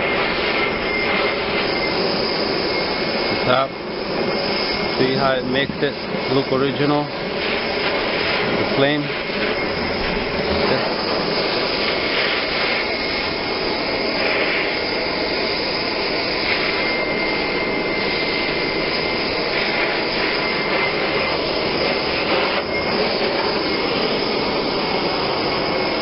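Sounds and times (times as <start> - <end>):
faint high whistle: 0.0 - 3.7
gas torch hissing: 0.0 - 26.0.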